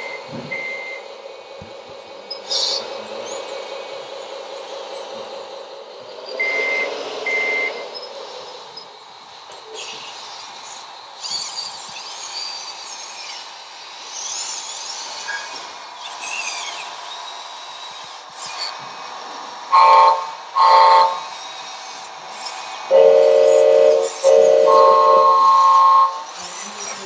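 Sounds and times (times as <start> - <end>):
small electric motors whining: 7.9 - 27.0
electronic horn honking: 19.7 - 21.3, 22.9 - 26.4.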